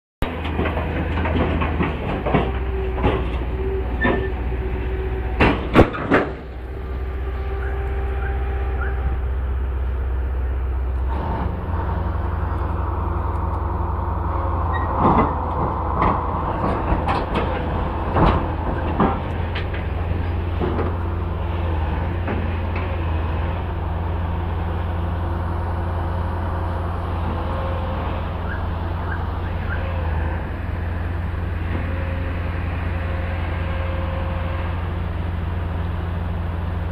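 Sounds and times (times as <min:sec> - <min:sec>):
metallic knocks of steel tracks: 0:00.2 - 0:09.2, 0:11.0 - 0:23.7
diesel engine running: 0:00.2 - 0:36.9.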